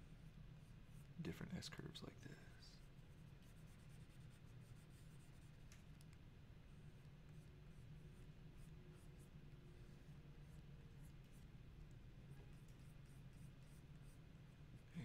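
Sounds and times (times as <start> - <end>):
steady low hum: 0.0 - 15.0
stylus scratching on pen display: 2.8 - 6.1, 6.8 - 15.0.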